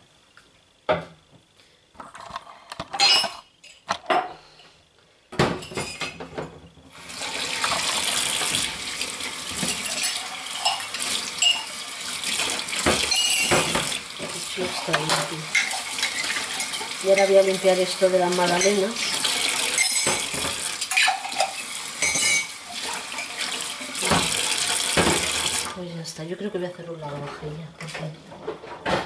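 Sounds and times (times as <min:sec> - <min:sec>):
tap water running into sink: 0:06.9 - 0:25.8
dishes and cutlery clinking: 0:09.6 - 0:11.8, 0:12.8 - 0:14.0, 0:14.8 - 0:17.5, 0:18.4 - 0:22.6.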